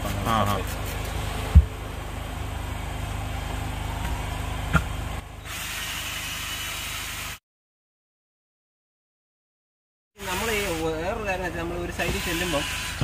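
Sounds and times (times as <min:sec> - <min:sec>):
cordless drill motor whining: 0:11.9 - 0:13.0.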